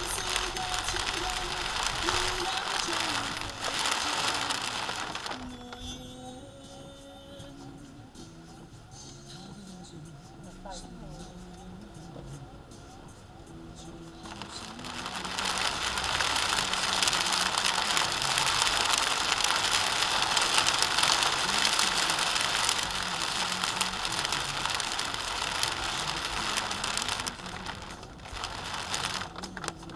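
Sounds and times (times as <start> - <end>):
rain and tyres on wet road: 0.0 - 6.2, 14.0 - 29.9.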